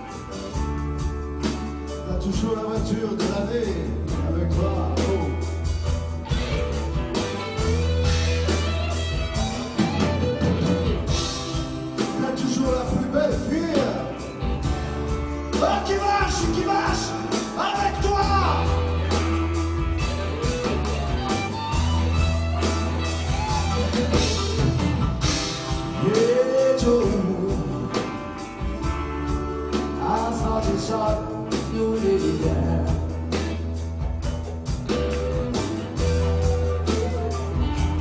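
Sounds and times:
live blues-rock band: 0:00.0 - 0:38.0
men singing: 0:26.0 - 0:27.9, 0:30.0 - 0:33.1.

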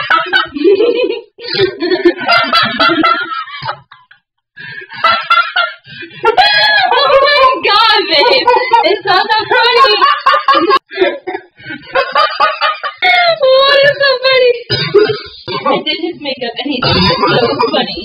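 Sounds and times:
laughter: 0:00.0 - 0:13.4, 0:17.0 - 0:18.0.

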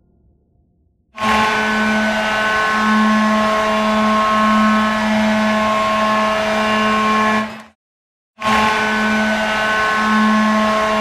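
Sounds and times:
goal horn blast: 0:01.2 - 0:07.5.

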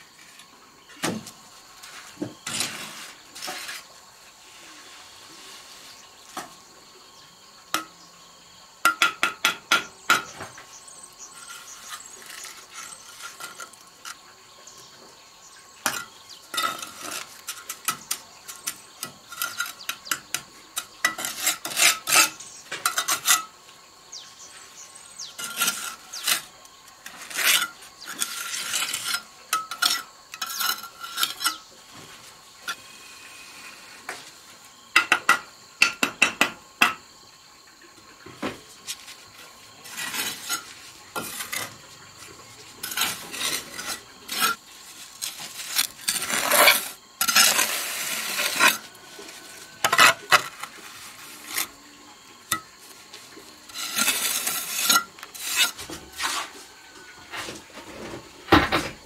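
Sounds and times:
trowel scraping mortar: 0:01.8 - 0:06.1, 0:11.0 - 0:14.2, 0:15.8 - 0:23.6, 0:24.9 - 0:34.2, 0:39.8 - 0:51.8, 0:53.6 - 0:56.7.

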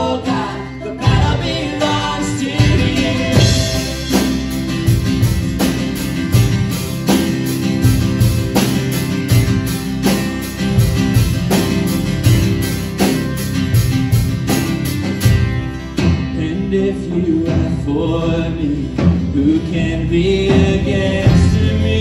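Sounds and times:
voices singing: 0:00.0 - 0:04.6
acoustic and electric guitars: 0:00.0 - 0:22.0
drum kit with steady beat: 0:00.0 - 0:22.0
keyboard: 0:00.0 - 0:22.0.

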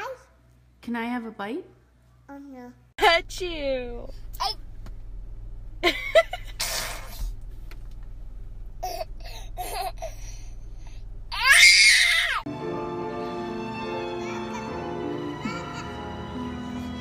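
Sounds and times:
toddler giggling: 0:08.8 - 0:10.3, 0:14.2 - 0:16.0
toddler shrieking with laughter: 0:11.3 - 0:12.4
music: 0:12.5 - 0:17.0.

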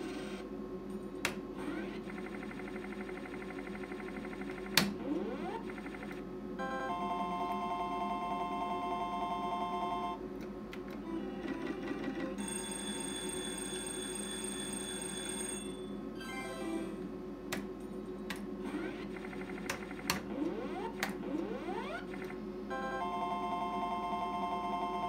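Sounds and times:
slot machine ringing beeping tones: 0:06.6 - 0:10.2, 0:11.3 - 0:17.1, 0:22.7 - 0:25.0.

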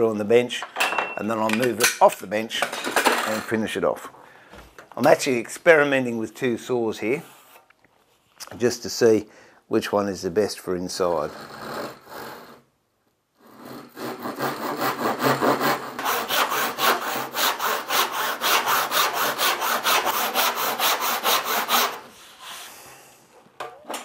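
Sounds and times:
handsaw cutting wood: 0:11.3 - 0:12.6, 0:13.4 - 0:22.1.

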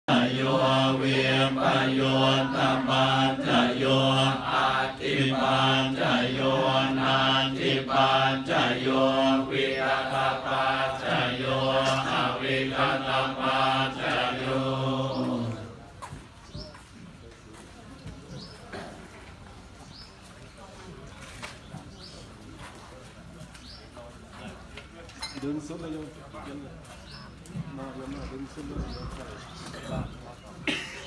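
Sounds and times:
monks chanting in unison: 0:00.1 - 0:15.8.

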